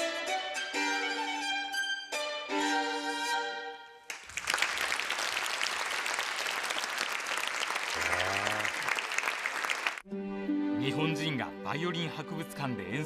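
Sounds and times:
solo violin: 0:00.0 - 0:04.0
audience applause: 0:04.1 - 0:10.0.

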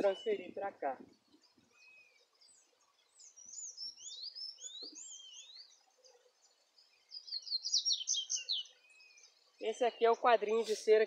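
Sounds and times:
songbird whistling: 0:03.3 - 0:05.7, 0:07.2 - 0:09.2.

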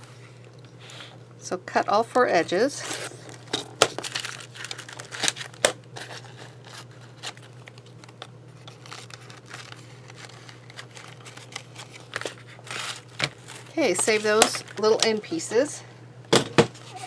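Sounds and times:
trimmer blade scraping paper: 0:04.0 - 0:07.5, 0:08.6 - 0:14.8.

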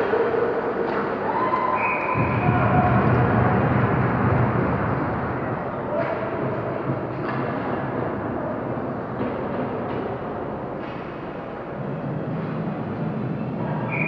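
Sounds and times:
arena rumbling hum: 0:00.0 - 0:14.0.

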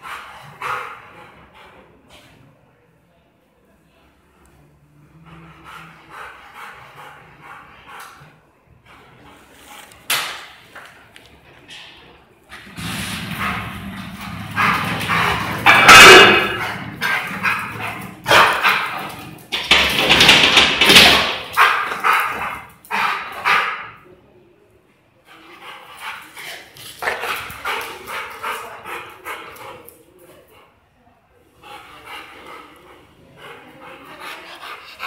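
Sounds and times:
dog barking: 0:14.6 - 0:19.0.

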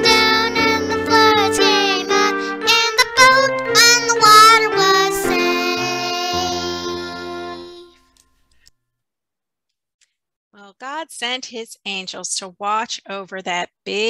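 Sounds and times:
children's song with instruments: 0:00.0 - 0:08.4.

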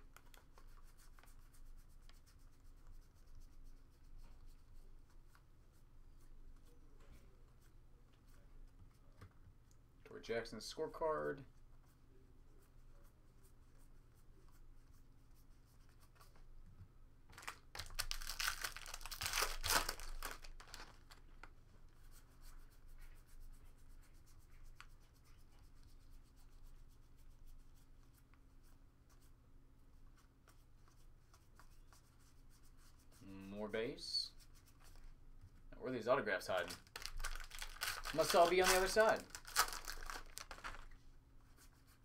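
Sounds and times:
foil wrapper crinkling and tearing: 0:17.4 - 0:21.2, 0:36.7 - 0:40.8
cards flipped by hand: 0:36.7 - 0:40.9.

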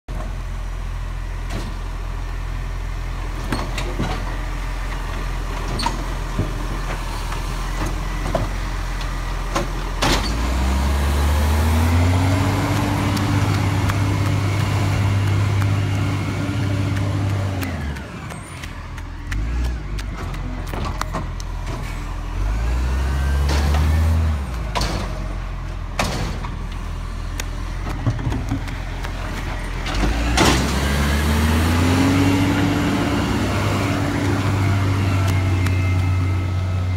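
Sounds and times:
garbage truck engine: 0:00.1 - 0:36.9.

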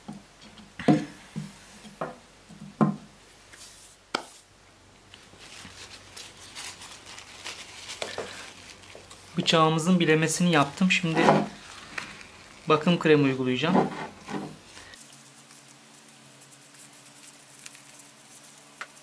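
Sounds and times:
wooden knocks on workbench: 0:00.8 - 0:03.0.

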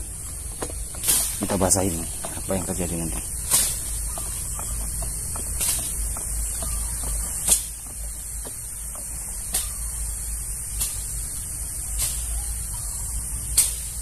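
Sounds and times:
sprayer nozzle hissing: 0:00.0 - 0:12.7
sharp ticks: 0:00.2 - 0:11.2.

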